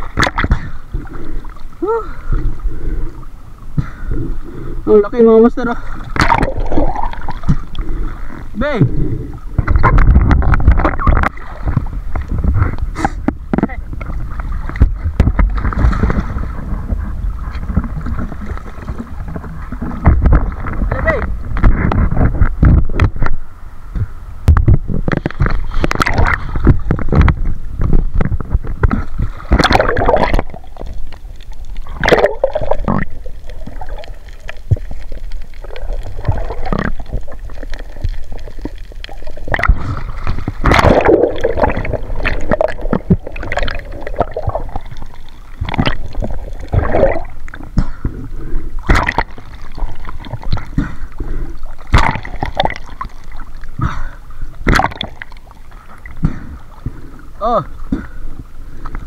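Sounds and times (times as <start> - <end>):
water gurgling and sloshing: 0.0 - 59.0.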